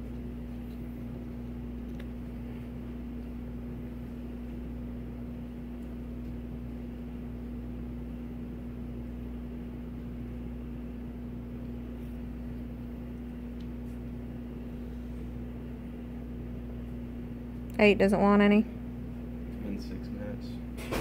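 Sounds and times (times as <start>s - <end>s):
mechanical hum: 0.0s - 21.0s.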